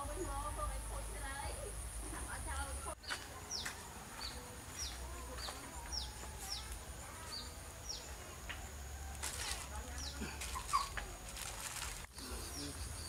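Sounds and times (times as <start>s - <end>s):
bird chirping: 0.0s - 8.8s, 12.2s - 13.0s.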